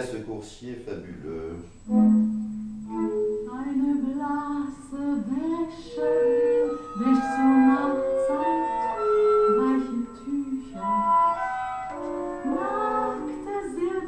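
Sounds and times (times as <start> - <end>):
person singing long held notes: 2.9 - 14.0.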